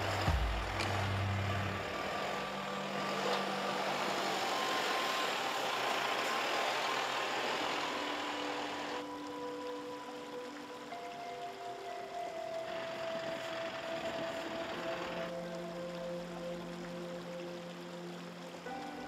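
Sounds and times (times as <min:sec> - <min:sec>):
tyres churning through snow: 0:00.0 - 0:09.2
diesel engine low drone: 0:00.0 - 0:10.5, 0:11.8 - 0:18.8.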